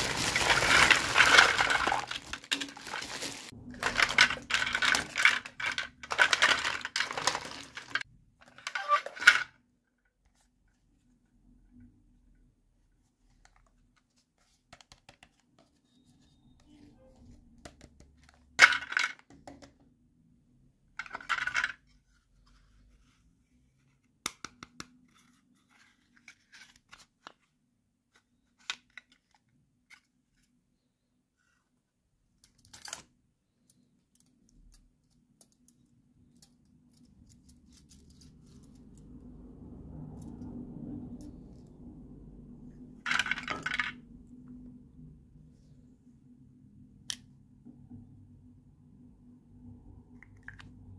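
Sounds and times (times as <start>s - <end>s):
toys clicking and knocking: 3.7s - 9.5s.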